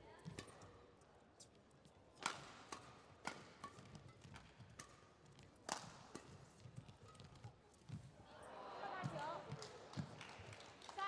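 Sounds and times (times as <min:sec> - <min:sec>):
rackets hitting shuttlecock: 0:02.2 - 0:08.0.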